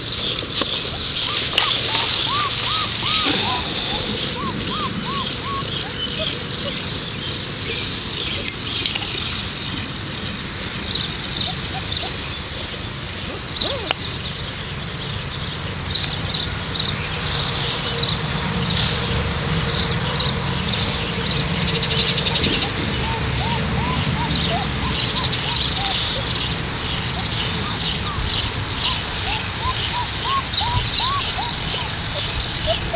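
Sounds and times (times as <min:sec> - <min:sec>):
birds chirping: 0:00.0 - 0:32.9
puppies squeaking: 0:00.7 - 0:07.0, 0:11.3 - 0:14.0, 0:22.3 - 0:32.9.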